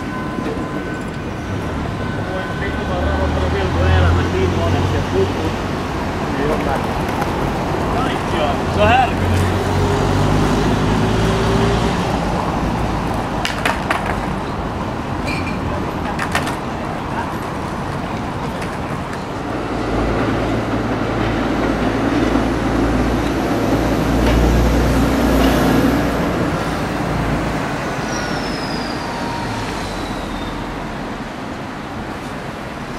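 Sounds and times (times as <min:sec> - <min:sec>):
tram passing by: 0:00.0 - 0:32.9
trams and traffic rumbling: 0:00.0 - 0:32.9
high squeal falling in pitch: 0:27.9 - 0:30.9.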